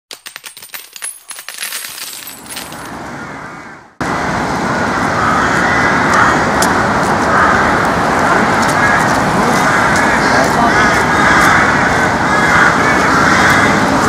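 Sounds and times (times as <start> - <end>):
metal coins clinking: 0.1 - 2.9
outdoor background noise: 0.1 - 14.0.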